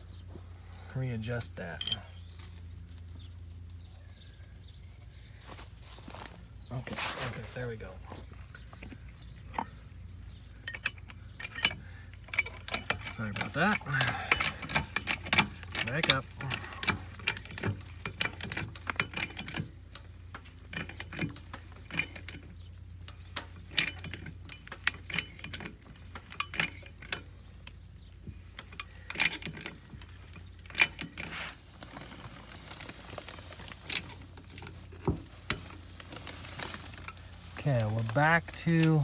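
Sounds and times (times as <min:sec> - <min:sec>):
metallic clicks of a jack: 0:10.7 - 0:27.8.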